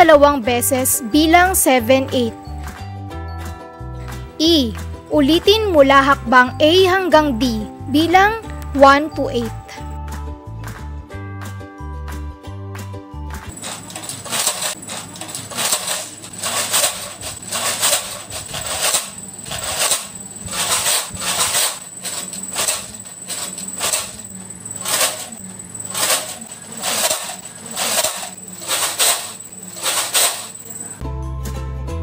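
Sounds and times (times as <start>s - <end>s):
plastic bottle maracas rattling: 13.5s - 31.0s.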